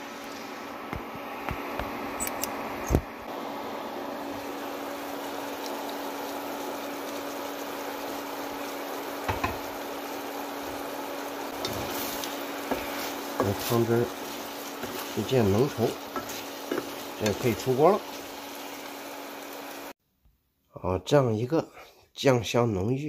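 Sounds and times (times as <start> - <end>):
sauce bubbling in a pan: 4.3 - 20.0.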